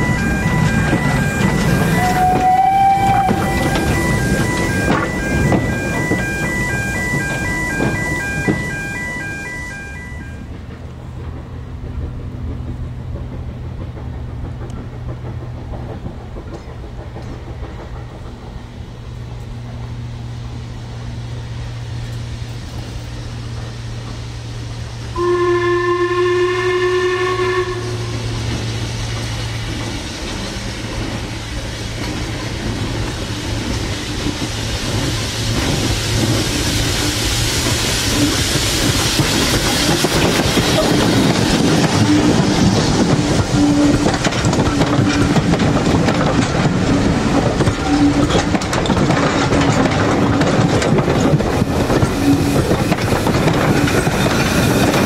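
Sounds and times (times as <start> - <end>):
steam locomotive whistle: 0.0 - 10.5, 25.1 - 28.4, 40.0 - 45.3
train running noise: 0.0 - 55.0.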